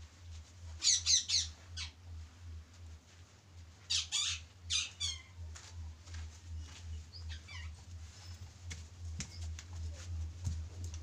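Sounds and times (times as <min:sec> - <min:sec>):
shrill animal calls: 0:03.9 - 0:05.4.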